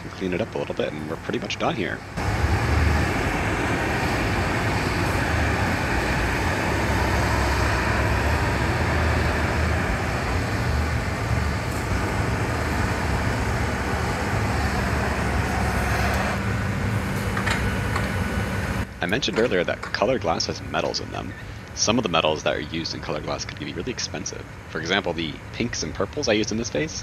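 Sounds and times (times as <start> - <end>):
low steady drone: 0.0 - 27.0
gas torch hissing: 2.2 - 18.8.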